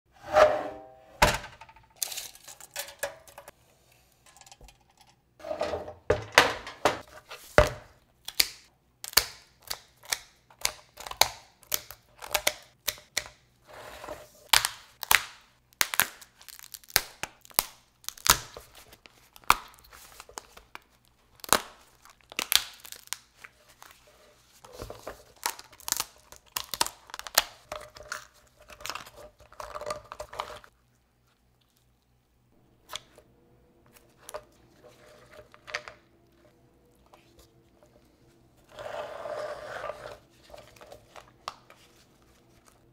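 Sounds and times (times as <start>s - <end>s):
metal sheet pan clanking: 0.2s - 1.6s
lobster shell cracking: 25.4s - 29.0s.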